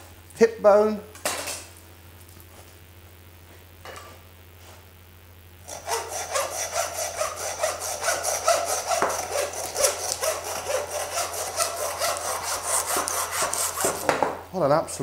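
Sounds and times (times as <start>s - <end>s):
hand saw cutting bone: 5.7s - 14.2s.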